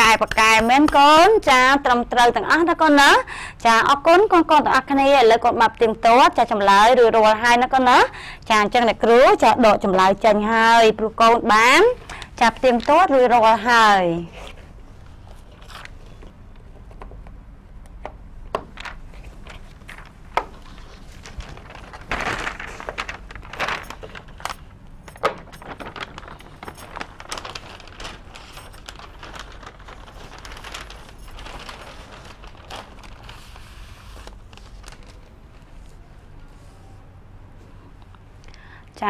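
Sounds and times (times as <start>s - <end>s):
paper rustling and crinkling: 18.6s - 36.8s.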